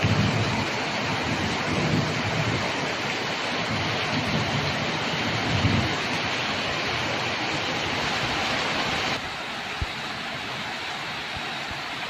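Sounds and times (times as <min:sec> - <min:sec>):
low thunder rumbles: 0:00.0 - 0:08.5
heavy rain pouring: 0:00.0 - 0:12.0.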